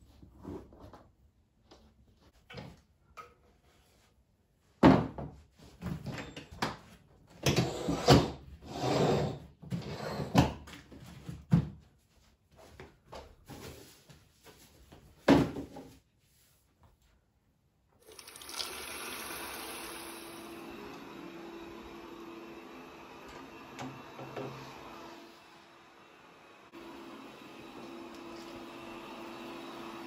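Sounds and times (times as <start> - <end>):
furniture scraping on floor: 7.5 - 10.6.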